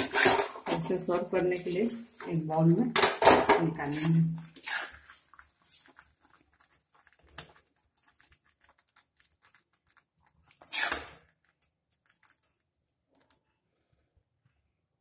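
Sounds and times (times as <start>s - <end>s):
ladle scraping metal pan: 0.0s - 2.3s, 3.1s - 5.9s, 10.6s - 11.2s.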